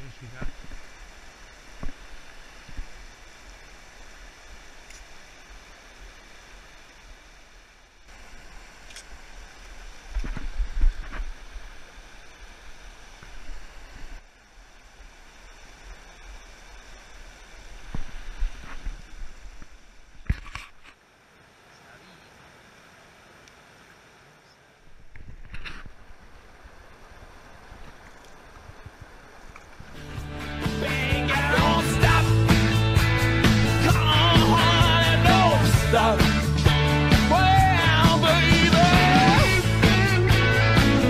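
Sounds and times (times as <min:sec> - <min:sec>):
river rushing over rocks: 0:00.0 - 0:20.3, 0:26.0 - 0:41.0
wind buffeting microphone: 0:24.9 - 0:30.1.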